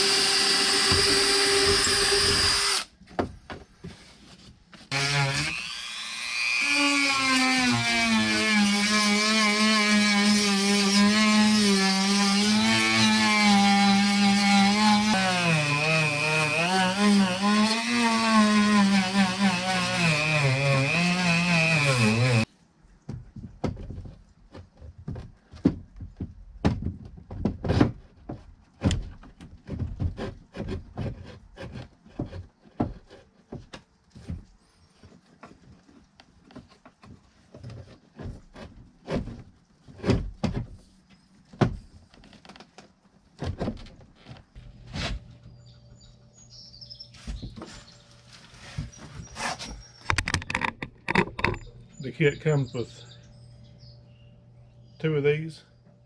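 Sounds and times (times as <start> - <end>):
knocks and clicks of handling parts: 3.0 - 4.8, 23.0 - 40.8, 50.0 - 51.7
rotary tool motor whine: 5.5 - 6.8.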